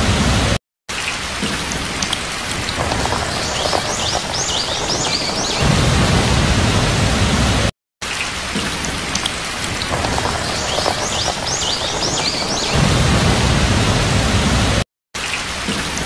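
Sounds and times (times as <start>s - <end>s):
heavy rain pouring: 0.0s - 14.8s
deep low rumble: 5.0s - 7.7s, 12.6s - 14.8s.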